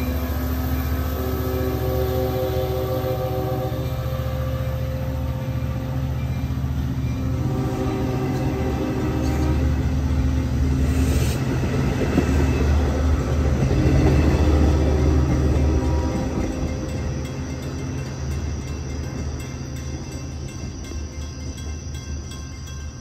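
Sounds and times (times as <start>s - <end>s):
train wheels rumbling on rails: 0.0s - 23.0s.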